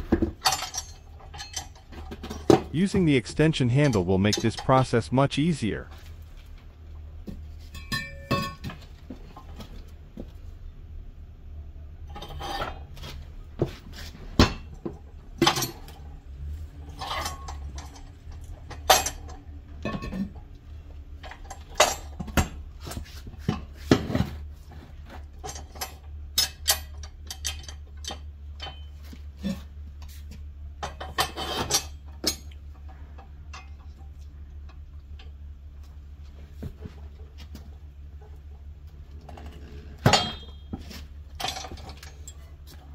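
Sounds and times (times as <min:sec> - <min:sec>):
tire being shuffled: 0:12.1 - 0:18.6, 0:22.1 - 0:25.8, 0:35.7 - 0:42.9
metal lever clanking on rim: 0:40.0 - 0:42.3.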